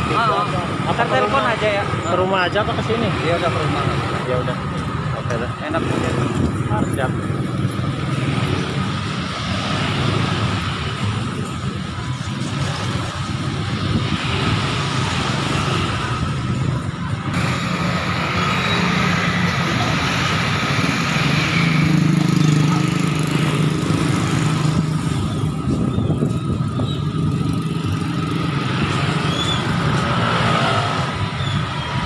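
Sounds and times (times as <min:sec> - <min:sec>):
cars and motorcycles passing: 0:00.0 - 0:32.0.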